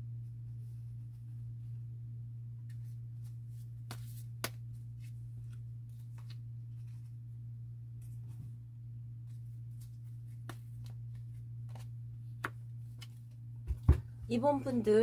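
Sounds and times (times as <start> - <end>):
steady low hum: 0.0 - 15.0
cards swishing and tapping on table: 2.7 - 7.0, 9.3 - 13.9.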